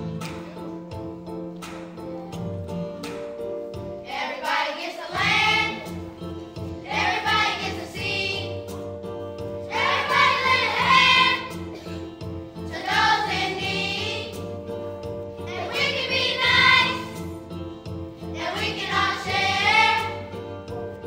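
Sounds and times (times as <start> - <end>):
instrumental accompaniment: 0.0 - 21.0
children's choir singing: 4.0 - 8.8, 9.6 - 14.6, 15.4 - 17.5, 18.2 - 20.6.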